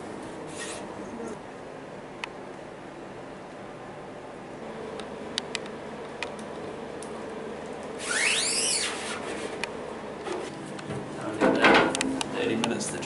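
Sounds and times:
steady low hum: 0.0s - 13.0s
loud high squeak: 8.0s - 9.5s.

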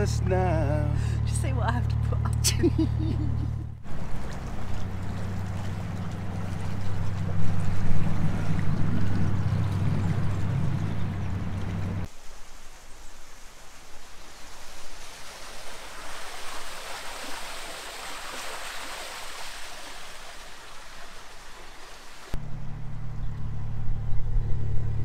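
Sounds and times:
boat engine humming: 0.0s - 12.1s, 15.1s - 25.0s
water rushing: 3.8s - 22.4s.

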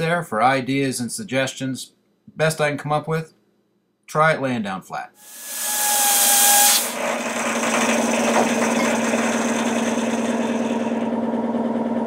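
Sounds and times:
compressed air hissing: 5.2s - 7.2s.

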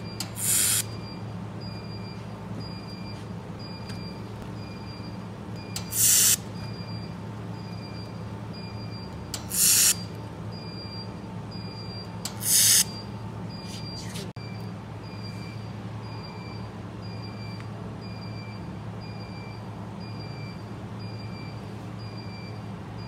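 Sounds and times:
laser welder hissing bursts: 0.4s - 0.9s, 5.9s - 6.4s, 9.5s - 10.0s, 12.4s - 12.9s.

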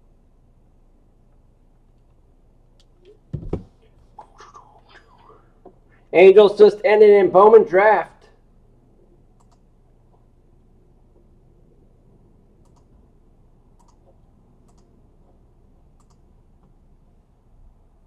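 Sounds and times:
faint computer clicks: 9.4s - 9.7s, 12.6s - 12.9s, 13.8s - 15.0s, 16.0s - 16.8s.

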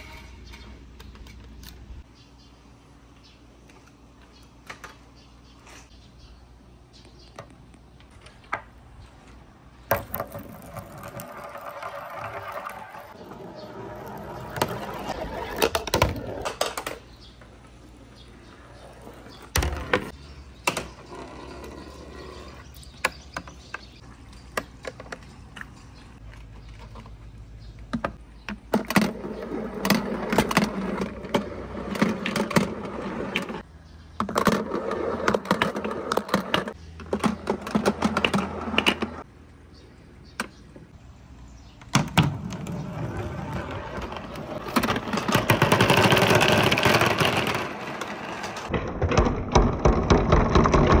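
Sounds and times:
marbles rolling and clattering: 9.9s - 13.2s, 43.6s - 51.0s.

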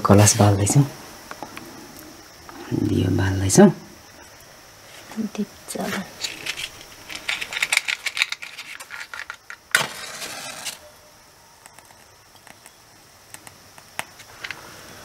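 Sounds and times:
matchbox rattling: 6.2s - 10.8s
match struck flaring with hiss: 9.2s - 10.8s.

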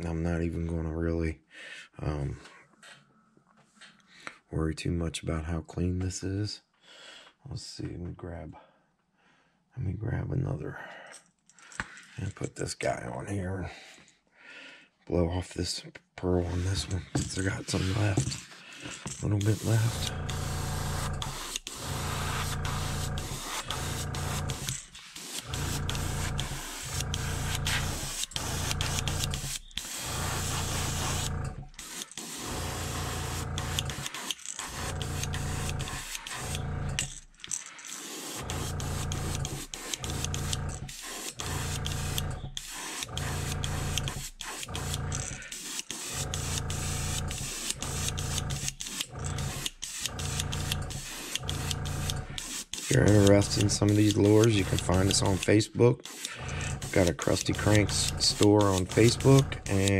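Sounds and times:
airbrush spraying bursts: 16.5s - 18.4s, 19.3s - 37.1s, 37.8s - 59.9s.

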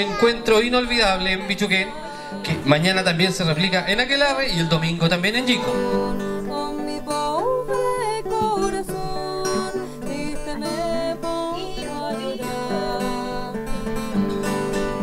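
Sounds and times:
strummed acoustic guitar: 0.0s - 15.0s
woman singing: 1.4s - 2.9s, 5.4s - 14.3s.

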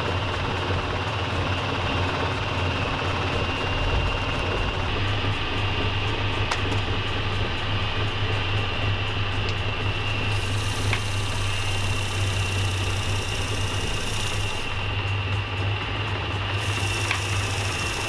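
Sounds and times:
centrifuge motor hum: 0.0s - 18.0s.

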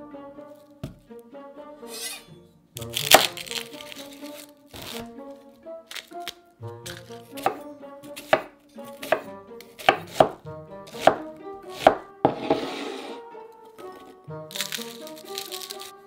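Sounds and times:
knife chopping on wooden board: 3.0s - 3.4s, 6.8s - 7.6s, 8.2s - 12.9s.

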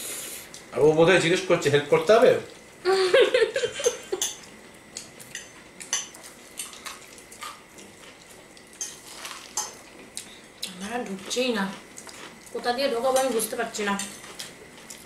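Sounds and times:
forks clinking on plates: 3.8s - 4.5s.

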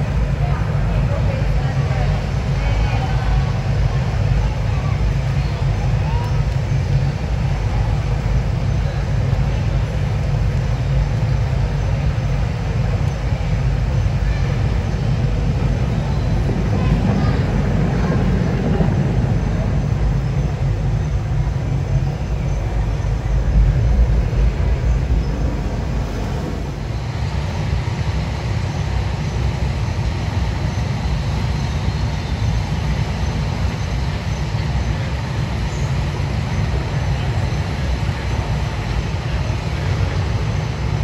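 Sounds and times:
airport terminal hall rumble: 0.0s - 41.0s.

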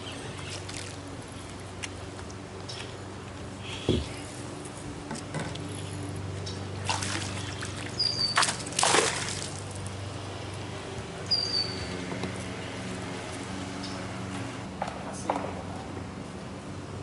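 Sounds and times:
fish splashing at water surface: 6.8s - 9.9s
bird whistling: 7.9s - 8.4s, 11.3s - 11.9s.

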